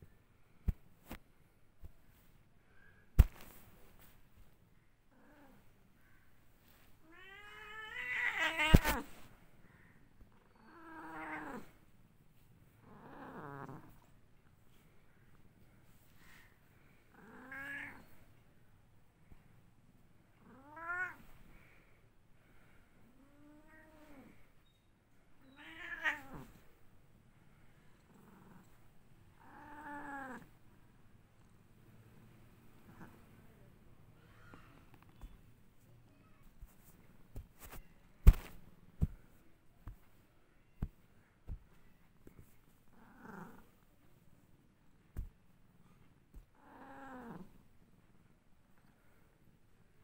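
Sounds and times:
cat meowing softly: 7.0s - 9.2s, 17.2s - 18.2s, 20.4s - 21.3s, 25.4s - 26.6s
cat meowing: 25.4s - 26.5s.

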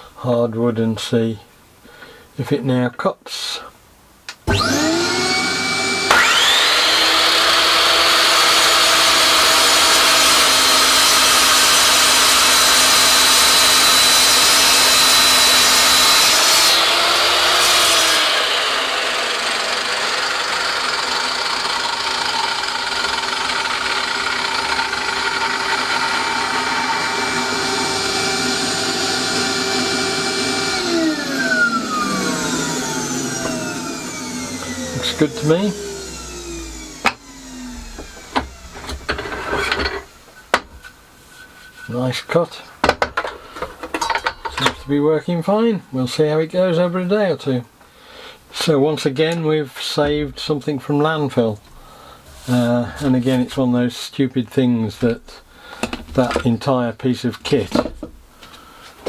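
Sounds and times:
mitre saw cutting wood: 4.5s - 40.2s
shop vacuum running: 4.5s - 40.7s.

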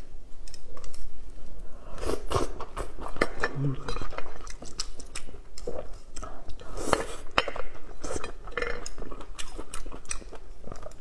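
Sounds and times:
chewing: 2.2s - 11.0s.

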